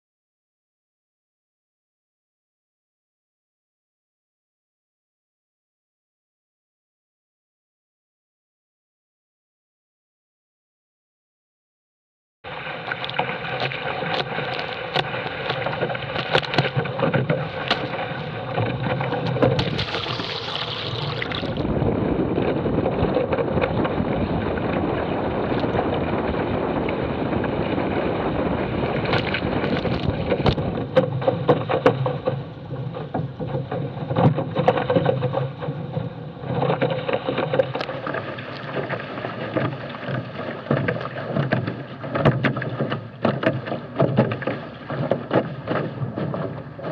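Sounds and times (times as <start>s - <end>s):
water rushing along hulls: 12.5s - 46.9s
wind buffeting microphone: 13.1s - 46.9s.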